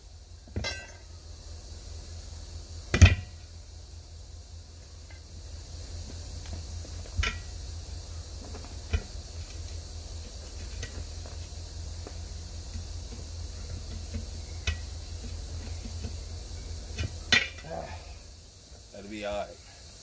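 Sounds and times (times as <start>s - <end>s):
steady hiss and low rumble: 0.0s - 20.0s
tire iron clinking on wheel rim: 0.5s - 1.1s, 2.9s - 3.6s, 5.0s - 18.3s.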